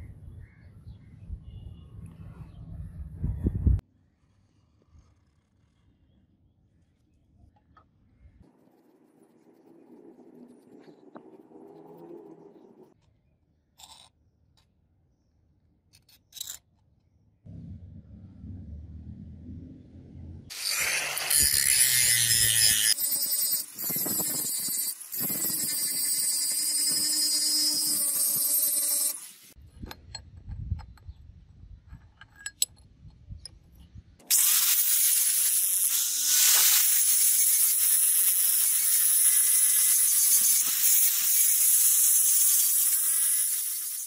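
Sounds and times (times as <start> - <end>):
angle grinder grinding steel: 20.5 - 29.6, 34.3 - 44.0.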